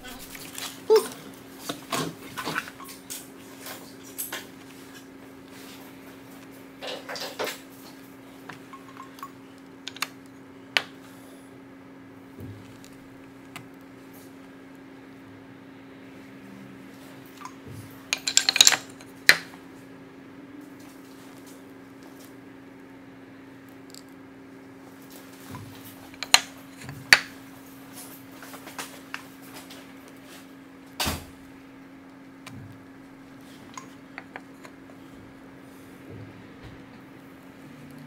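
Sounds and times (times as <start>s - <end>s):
steady low hum: 0.0s - 38.0s
wooden handles clacking: 18.1s - 19.4s, 25.8s - 27.3s.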